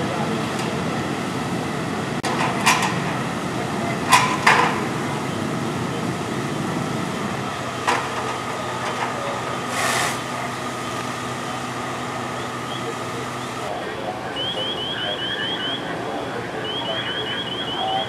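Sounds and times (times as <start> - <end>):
fire truck engines droning: 0.0 - 18.0
short hiss: 9.7 - 10.3.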